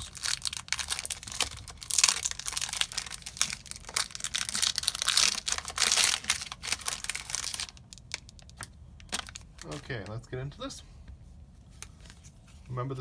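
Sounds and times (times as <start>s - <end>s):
foil wrapper crinkling and tearing: 0.0s - 9.9s.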